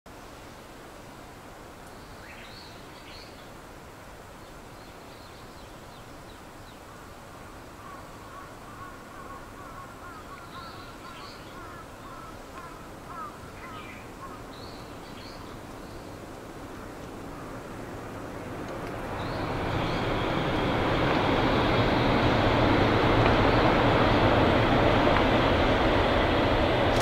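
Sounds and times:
steady background hiss: 0.1s - 27.0s
birds calling: 7.8s - 17.7s.

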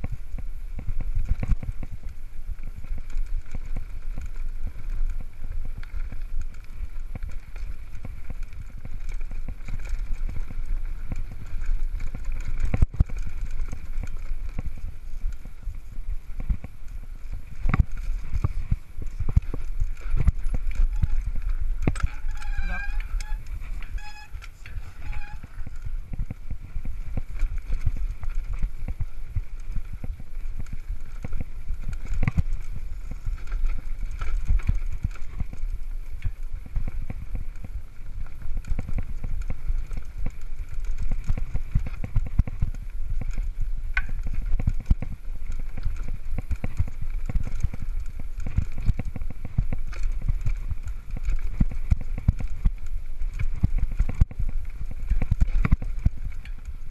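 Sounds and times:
bike rattling over bumps: 0.0s - 56.9s
wind rumble on microphone: 0.0s - 56.9s
short squeaks: 22.0s - 25.6s.

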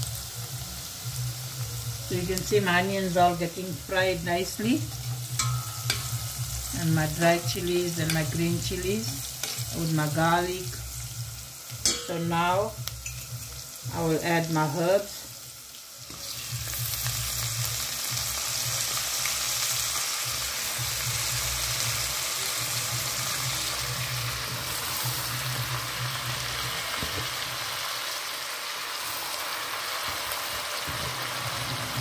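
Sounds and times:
hot oil sizzling in pot: 0.0s - 32.0s.

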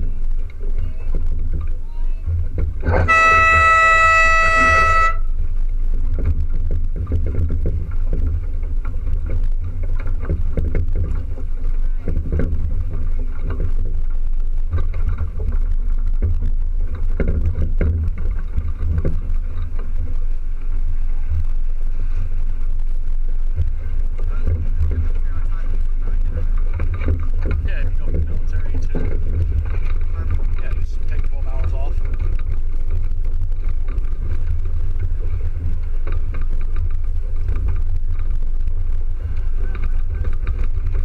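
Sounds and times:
water washing along hull: 0.0s - 41.0s
wind rumble on microphone: 0.0s - 41.0s
horn blast: 2.8s - 5.4s.

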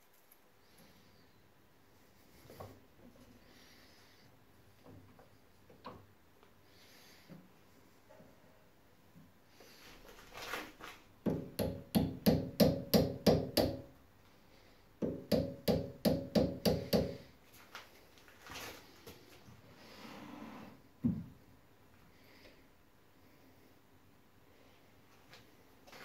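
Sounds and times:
hammer tapping on steel: 11.3s - 13.9s, 15.0s - 17.2s.

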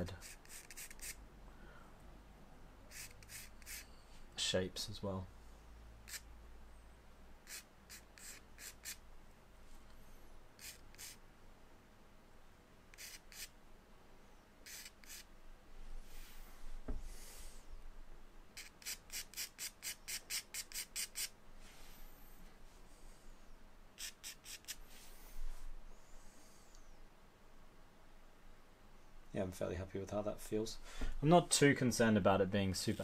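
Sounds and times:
charcoal scratching on paper: 0.1s - 1.2s, 2.9s - 3.9s, 7.4s - 9.0s, 10.6s - 11.2s, 12.9s - 13.5s, 14.6s - 15.3s, 18.6s - 21.3s, 24.0s - 25.0s
soft bump: 16.8s - 17.1s.

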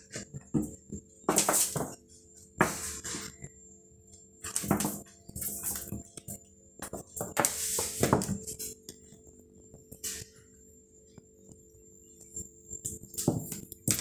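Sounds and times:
steady low hum: 0.0s - 14.0s
cat scuffing object on hard floor: 7.2s - 8.4s.

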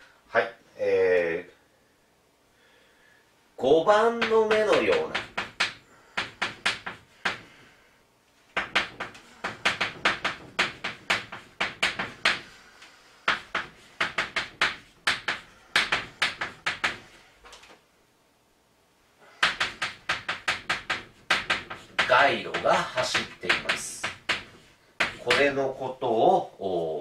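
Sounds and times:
chalk tapping and scraping on chalkboard: 4.2s - 7.6s, 8.5s - 17.2s, 19.4s - 26.0s.

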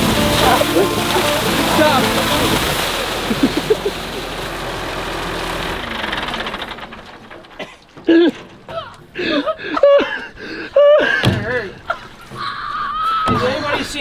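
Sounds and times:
hose jet splashing water: 0.0s - 7.7s
diesel pump engine: 0.0s - 9.3s
man laughing: 0.3s - 2.4s, 3.2s - 4.3s, 7.6s - 11.2s.

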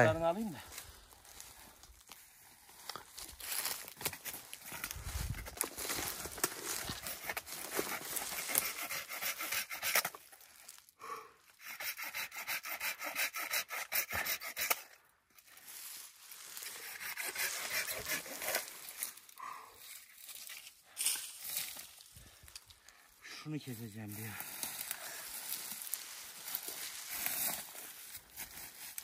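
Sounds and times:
hand saw cutting branch: 6.4s - 10.3s, 11.6s - 15.0s, 16.6s - 19.2s.

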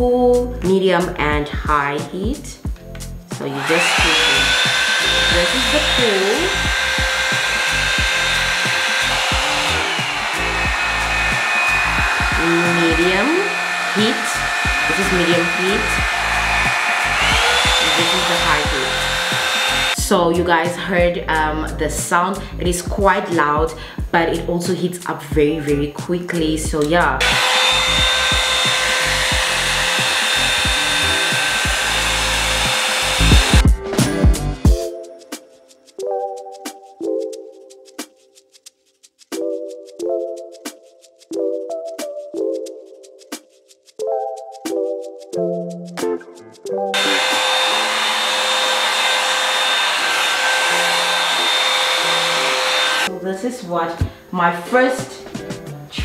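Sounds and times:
background music with a beat: 1.4s - 3.5s, 4.5s - 18.2s, 27.9s - 47.7s, 55.0s - 56.0s
hair dryer brush running: 3.4s - 20.0s, 27.2s - 33.8s, 47.0s - 53.1s.

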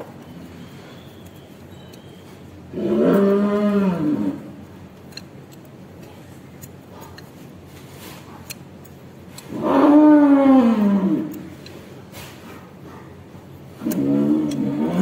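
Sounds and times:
cattle mooing: 2.7s - 4.5s.

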